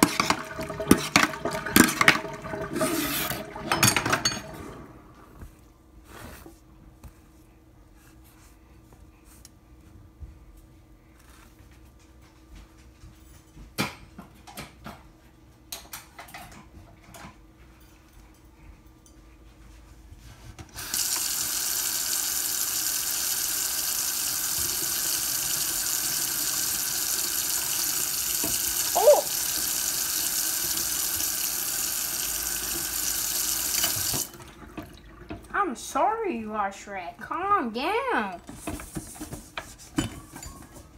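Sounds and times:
tap water running into metal sink: 0:00.0 - 0:04.9, 0:20.8 - 0:35.6.

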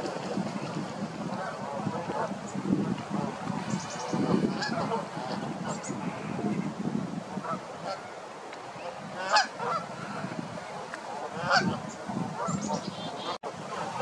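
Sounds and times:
geese honking: 0:03.1 - 0:06.6, 0:08.8 - 0:14.0.

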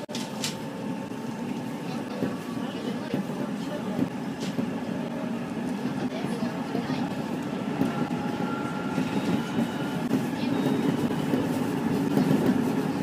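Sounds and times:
train wheels rolling on rails: 0:00.0 - 0:13.0.

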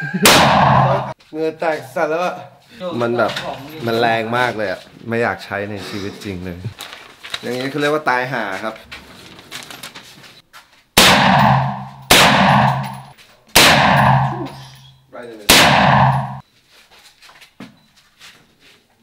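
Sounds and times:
rifle shots echoing indoors: 0:00.3 - 0:01.2, 0:11.0 - 0:14.6, 0:15.5 - 0:16.4.

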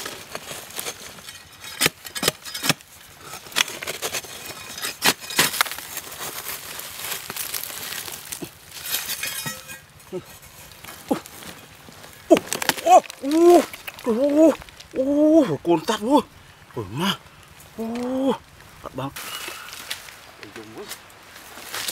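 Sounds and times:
bar chipping into hard earth: 0:00.0 - 0:06.6, 0:07.2 - 0:14.8
earth scraping and crumbling: 0:00.0 - 0:21.9.

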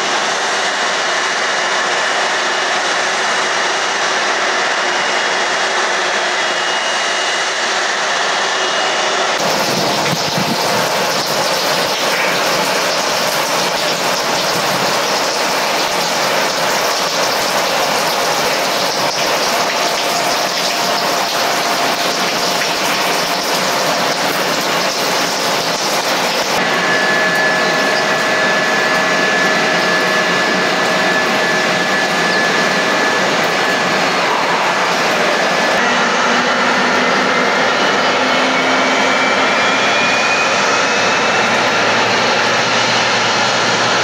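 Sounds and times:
jet engines running: 0:00.0 - 0:44.0.

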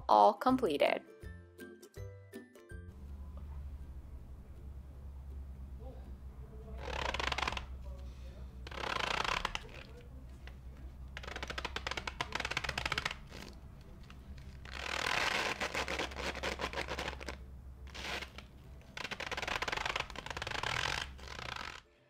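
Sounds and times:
stress ball crunching: 0:06.7 - 0:08.0, 0:08.6 - 0:21.8.

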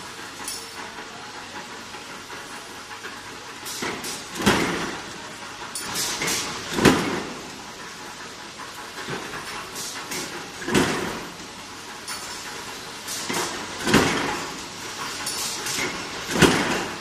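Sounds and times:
workshop noise: 0:00.0 - 0:17.0.

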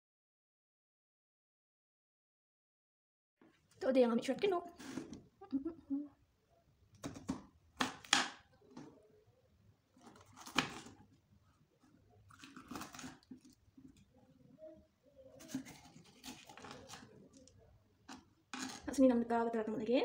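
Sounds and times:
knife cutting pepper on board: 0:10.1 - 0:11.0, 0:12.3 - 0:13.6, 0:15.4 - 0:17.4.

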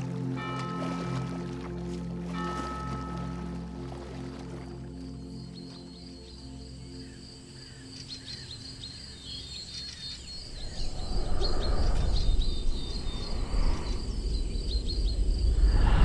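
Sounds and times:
small birds chirping: 0:05.2 - 0:15.8
low rushing noise in gusts: 0:10.5 - 0:16.0.

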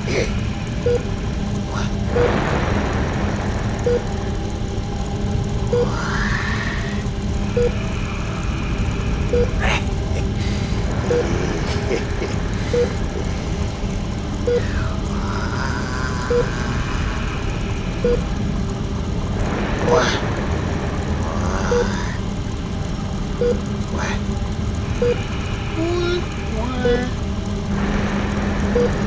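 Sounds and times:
steady low rumble: 0:00.0 - 0:29.0.

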